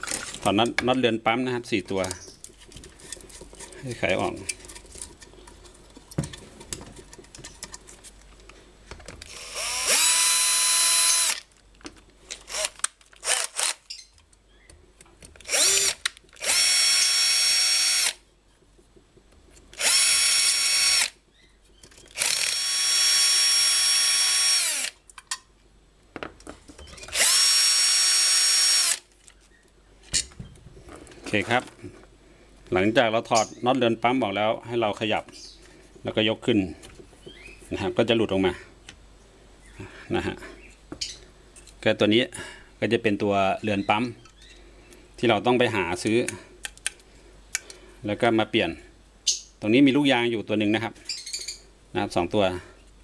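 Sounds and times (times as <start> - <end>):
small clicks and handling noises: 1.9 - 9.4, 46.2 - 47.8
cordless drill whining: 9.3 - 11.4, 12.5 - 13.8, 15.4 - 18.2, 19.8 - 21.1, 22.1 - 25.0, 27.1 - 29.0.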